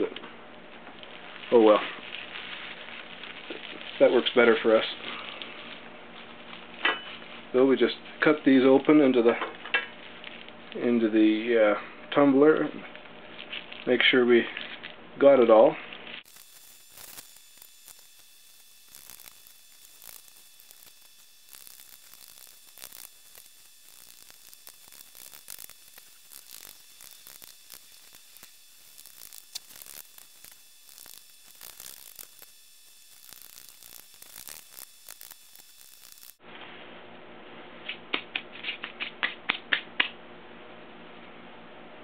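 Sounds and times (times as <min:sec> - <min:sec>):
plastic packets crinkling: 0:00.9 - 0:05.8, 0:16.2 - 0:36.4
grit pouring hiss: 0:16.2 - 0:36.4.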